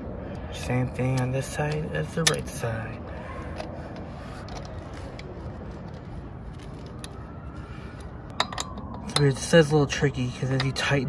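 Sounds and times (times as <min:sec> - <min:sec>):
low background rumble: 0:00.0 - 0:10.8
metal parts clicking and scraping: 0:03.4 - 0:07.2, 0:08.0 - 0:09.3.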